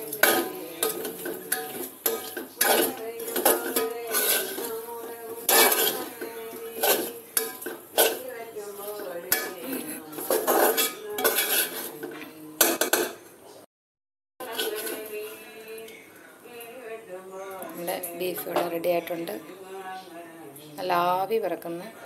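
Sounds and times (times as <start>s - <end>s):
metal spoon scraping metal pan: 0.0s - 13.2s, 14.4s - 15.5s.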